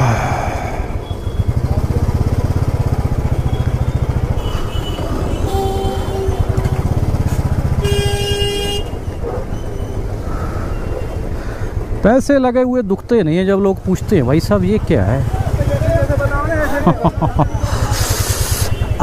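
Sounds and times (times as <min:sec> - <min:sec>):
motorcycle engine running: 0:01.0 - 0:12.0, 0:13.0 - 0:19.0
vehicle horns honking: 0:03.4 - 0:09.2.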